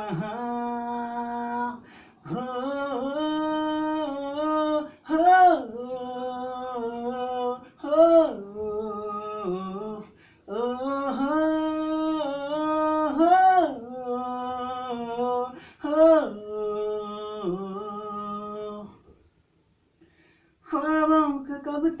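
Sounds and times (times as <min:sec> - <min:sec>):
man singing unaccompanied: 0:00.0 - 0:19.1, 0:20.6 - 0:22.0
singer breathing: 0:01.8 - 0:02.2, 0:10.0 - 0:10.5, 0:15.5 - 0:15.8, 0:20.0 - 0:20.6.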